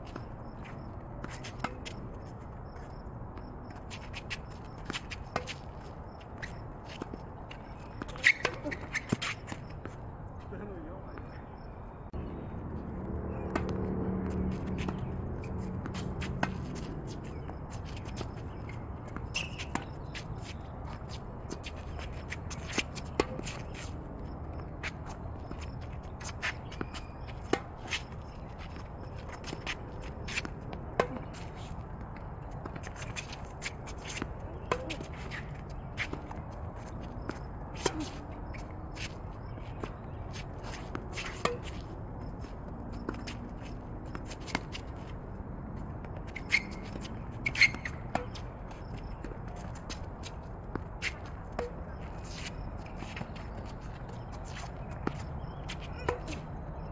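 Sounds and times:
tennis shoes scuffing: 0.0s - 11.7s, 13.3s - 56.9s.

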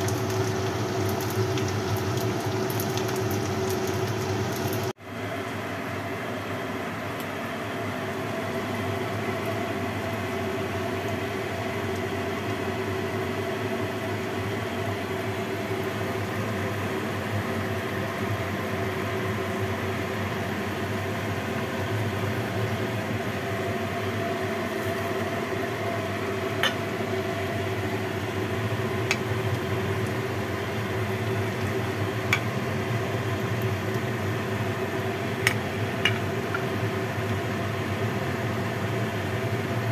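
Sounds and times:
soup simmering: 0.0s - 4.9s, 24.2s - 38.9s.

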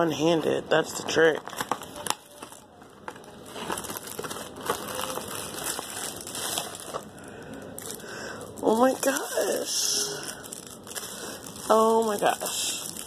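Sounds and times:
cardboard packaging crinkling: 1.0s - 7.1s, 7.7s - 13.0s.

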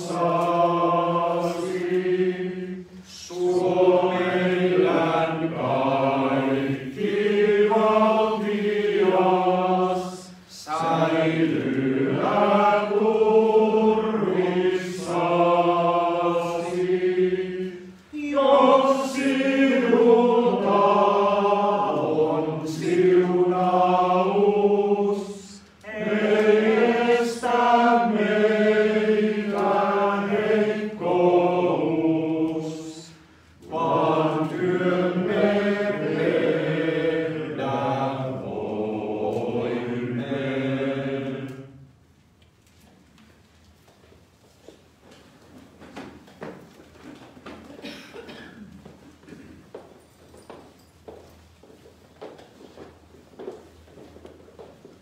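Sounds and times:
male choir singing a hymn: 0.0s - 41.9s.

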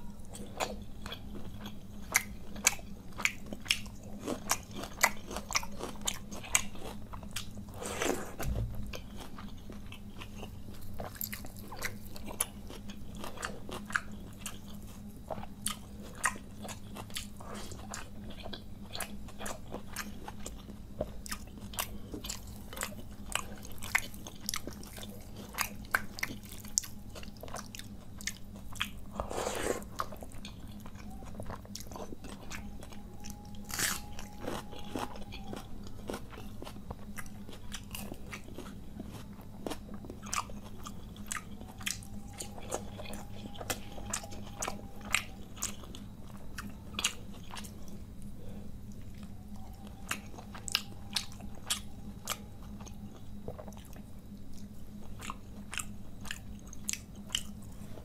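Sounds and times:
person chewing wetly: 0.0s - 58.0s
crunchy bite into onion: 33.6s - 46.0s.

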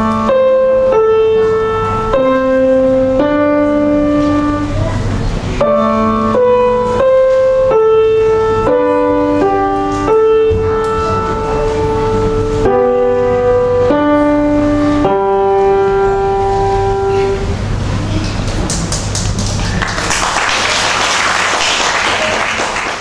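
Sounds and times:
piano chords: 0.0s - 23.0s
audience applause: 18.1s - 23.0s.

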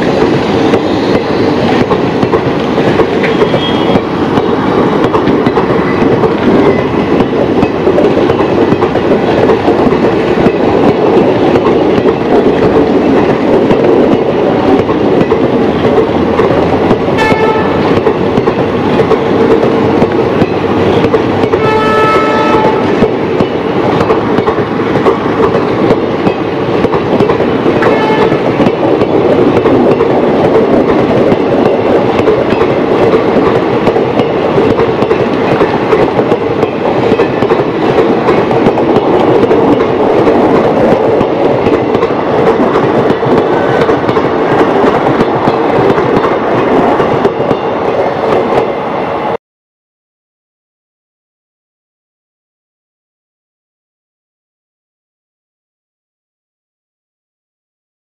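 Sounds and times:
train wheels rumbling on rails: 0.0s - 49.4s
train horn: 3.3s - 4.0s, 17.2s - 17.9s, 21.6s - 23.0s, 27.8s - 28.4s.

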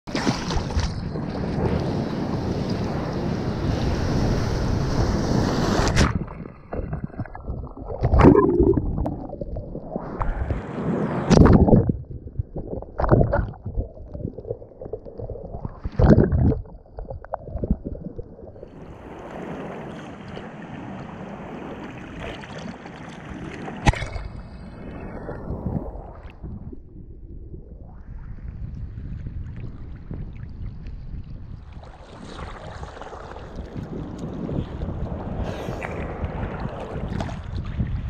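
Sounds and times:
wind: 0.1s - 15.0s, 15.7s - 38.0s
waves splashing over camera: 0.1s - 26.8s, 31.7s - 38.0s
churning water: 5.9s - 10.6s, 11.3s - 24.6s, 31.8s - 38.0s.

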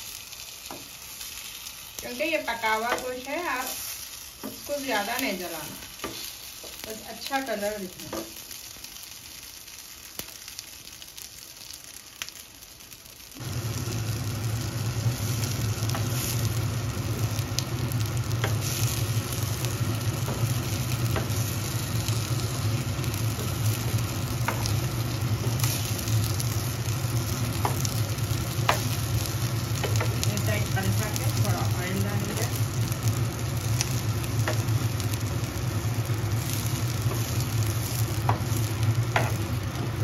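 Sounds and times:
food sizzling in oil: 0.0s - 40.0s
steady low hum: 13.4s - 40.0s.

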